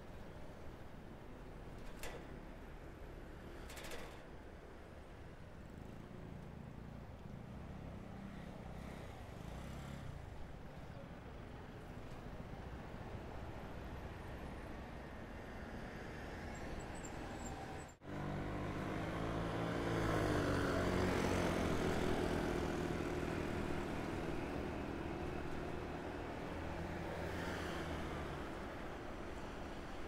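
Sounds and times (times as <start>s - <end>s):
motor vehicle engine hum passing: 15.7s - 30.0s.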